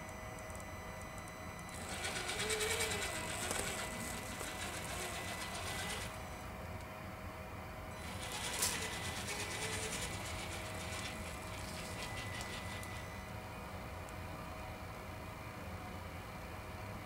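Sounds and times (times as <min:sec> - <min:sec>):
electric motor whining: 0:01.7 - 0:06.4, 0:08.0 - 0:13.3.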